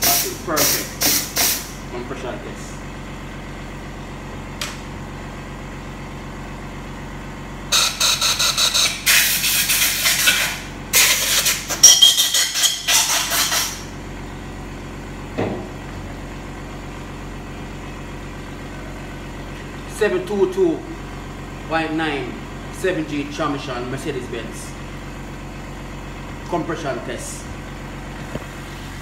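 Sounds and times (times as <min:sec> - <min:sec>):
compressed air hissing: 0:00.0 - 0:01.8
steady machine hum: 0:00.0 - 0:29.0
short knock: 0:15.4 - 0:15.7.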